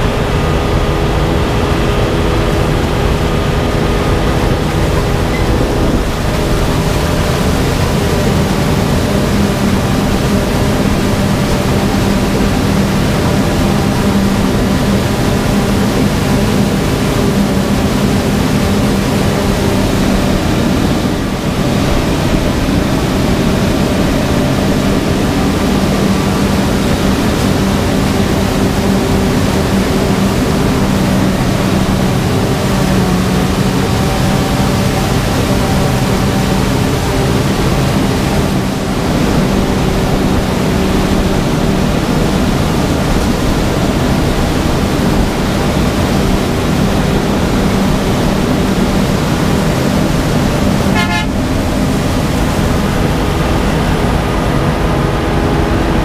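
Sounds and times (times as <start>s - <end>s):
forage harvester droning: 0.0s - 56.0s.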